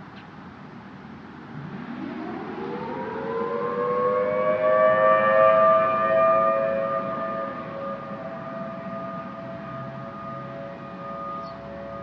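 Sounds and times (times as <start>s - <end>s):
warning siren wailing: 1.5s - 12.0s.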